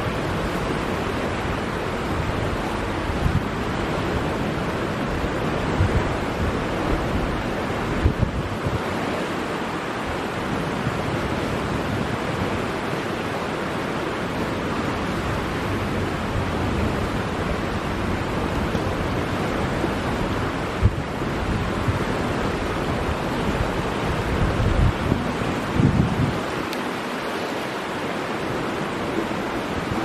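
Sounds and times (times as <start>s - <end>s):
wind bumps on microphone: 2.0s - 9.0s, 15.8s - 26.7s.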